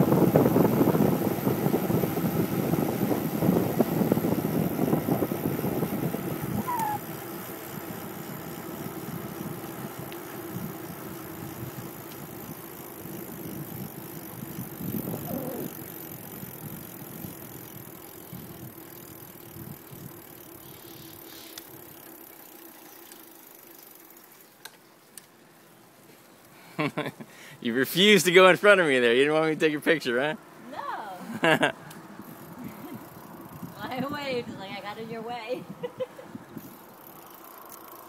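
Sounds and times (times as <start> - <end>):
wind rushing on microphone: 0.0 - 7.1, 13.2 - 17.4, 32.5 - 36.8
bicycle tyre noise: 0.0 - 29.2, 31.4 - 38.0.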